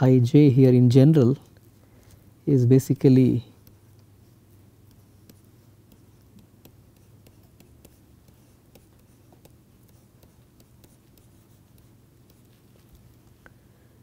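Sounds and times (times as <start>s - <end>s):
steady low hum: 0.0s - 14.0s
stylus tapping on pen tablet: 4.8s - 13.2s.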